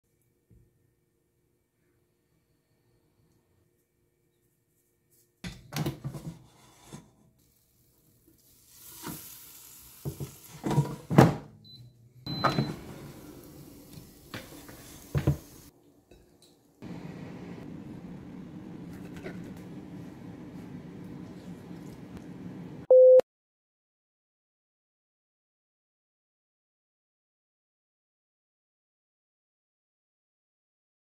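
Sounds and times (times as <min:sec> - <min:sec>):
kitchen knocks and clatter: 0:05.4 - 0:06.5, 0:10.1 - 0:11.5, 0:14.3 - 0:15.5
air fryer running whoosh: 0:12.3 - 0:15.7, 0:16.8 - 0:22.9
steady low hum: 0:16.8 - 0:22.9
short high beeps: 0:22.9 - 0:23.2.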